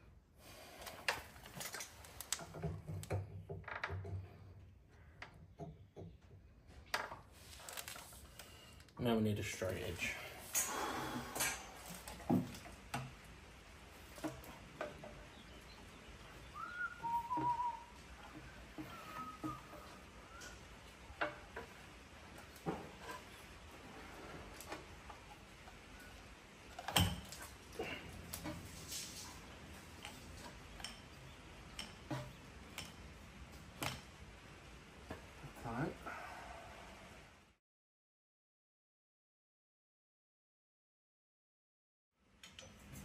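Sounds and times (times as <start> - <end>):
person whistling: 16.6 - 18.0, 18.9 - 19.7.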